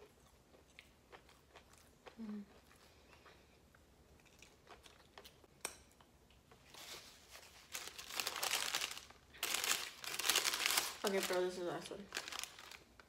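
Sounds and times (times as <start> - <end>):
paper napkin crinkling: 6.7 - 12.8.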